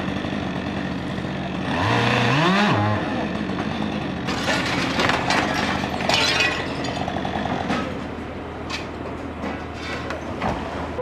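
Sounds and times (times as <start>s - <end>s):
chainsaw running: 0.0s - 4.4s, 6.8s - 7.7s
wood and glass breaking: 4.3s - 7.9s.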